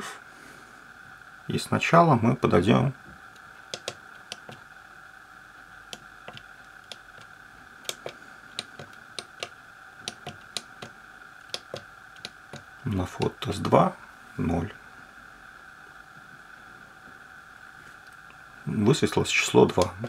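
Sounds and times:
calculator keys clicking: 3.7s - 4.6s, 7.9s - 9.5s, 10.1s - 10.9s, 11.5s - 13.7s.

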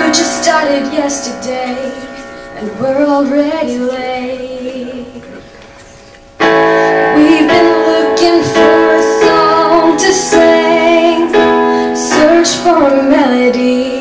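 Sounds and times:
woman singing with vibrato: 0.0s - 5.4s, 6.5s - 14.0s
keyboard piano chords: 0.0s - 14.0s.

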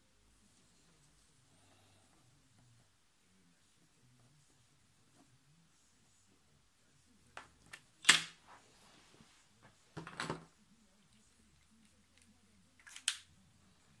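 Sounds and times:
objects knocking on a desk: 10.0s - 10.5s.

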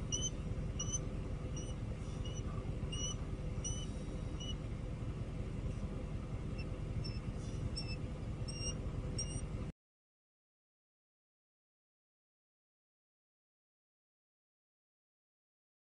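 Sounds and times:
eagle high thin chirps: 0.0s - 4.6s, 6.6s - 9.4s
steady low rumble: 0.0s - 9.7s.

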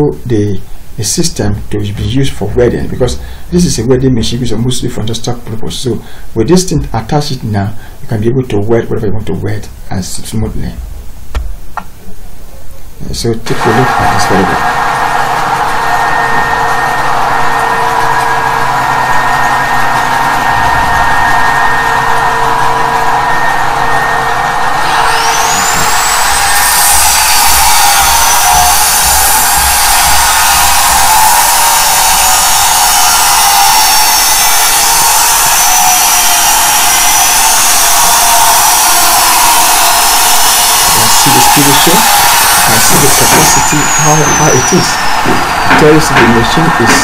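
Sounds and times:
high whine: 0.0s - 47.0s
electric motor running: 13.7s - 47.0s
angle grinder cutting steel: 15.2s - 47.0s.

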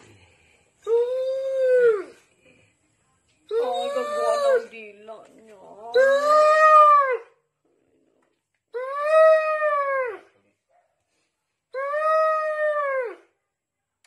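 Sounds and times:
dog howling: 3.5s - 4.7s.

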